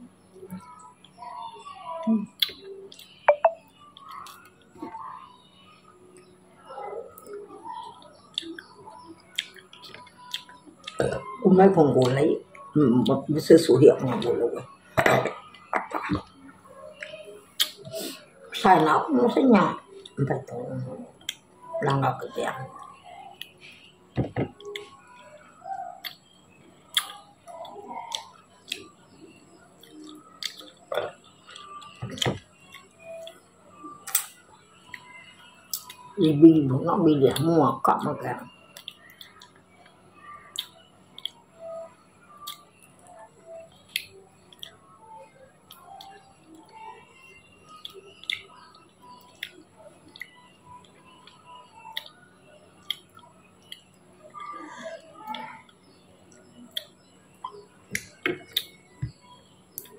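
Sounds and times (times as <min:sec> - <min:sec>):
soft chewing: 0:00.4 - 0:11.4, 0:22.7 - 0:36.2, 0:38.7 - 0:59.9.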